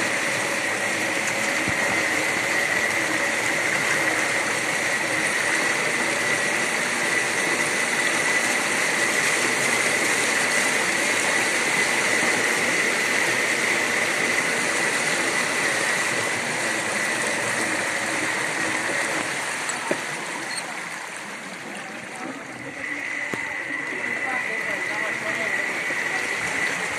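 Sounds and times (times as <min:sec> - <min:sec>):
floodwater rushing and splashing: 0:00.0 - 0:26.9
high whine: 0:00.0 - 0:26.9.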